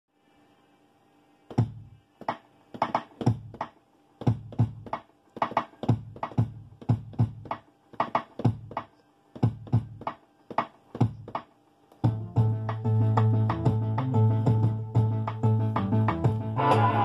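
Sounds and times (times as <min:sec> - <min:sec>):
beat with steady bass: 0:02.8 - 0:17.0.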